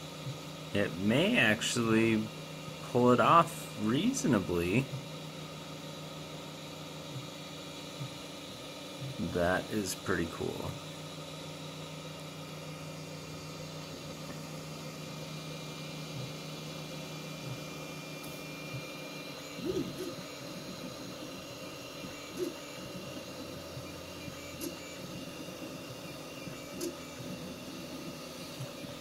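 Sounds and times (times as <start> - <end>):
cooling fans whirring: 0.0 - 29.0
stepper motors whining: 12.8 - 29.0.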